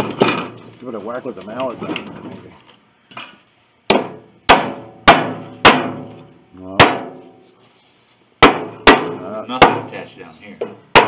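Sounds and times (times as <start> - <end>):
rubber mallet striking wood: 3.9 - 6.2, 6.8 - 7.3, 8.4 - 9.9, 10.6 - 11.0.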